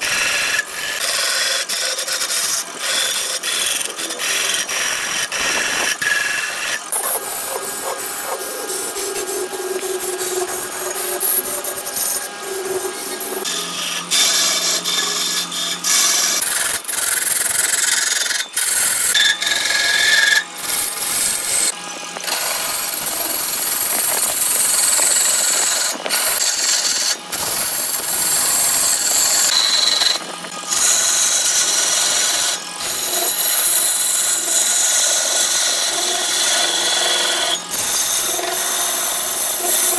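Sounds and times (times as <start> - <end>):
lathe tool scraping wood: 0.0 - 39.9.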